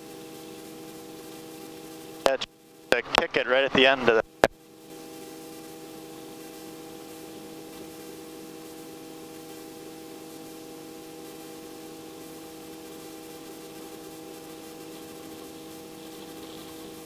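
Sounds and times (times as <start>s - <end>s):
helicopter drone: 2.2s - 6.3s.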